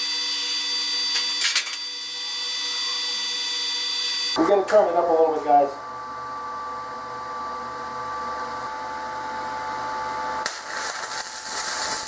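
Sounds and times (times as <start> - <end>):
welder humming: 0.0 - 12.0
welding arc crackling hiss: 10.4 - 12.0.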